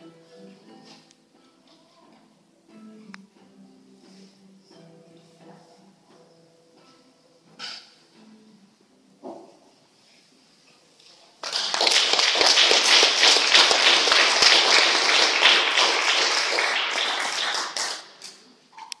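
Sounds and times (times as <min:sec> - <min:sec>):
audience applause: 0:11.4 - 0:18.4.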